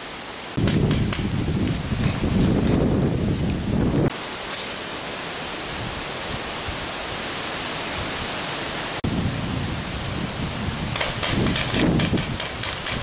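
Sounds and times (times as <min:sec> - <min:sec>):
steady hiss: 0:00.0 - 0:13.0
wind buffeting microphone: 0:00.6 - 0:04.1, 0:09.0 - 0:13.0.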